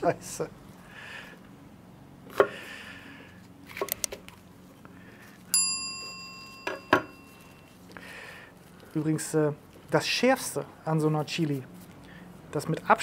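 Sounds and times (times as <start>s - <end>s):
bell-like ding: 5.5s - 7.7s.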